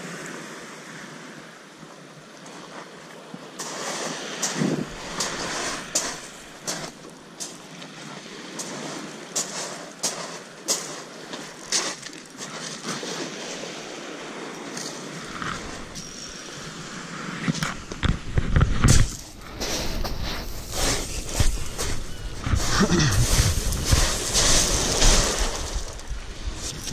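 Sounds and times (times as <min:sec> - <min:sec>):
small waves washing: 0:00.0 - 0:26.9
footsteps crunching on pebbles: 0:03.6 - 0:07.7, 0:08.6 - 0:13.2, 0:15.3 - 0:16.1, 0:17.5 - 0:26.9
wind buffeting microphone: 0:16.9 - 0:26.9.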